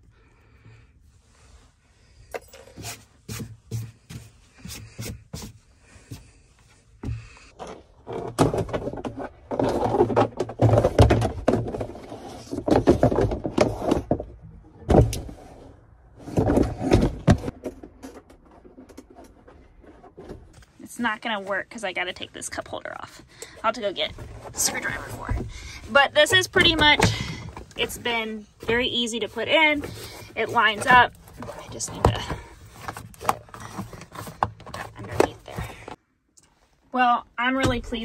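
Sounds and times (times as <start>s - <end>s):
rubber mat scraping and rubbing: 7.1s - 14.2s, 15.2s - 36.0s.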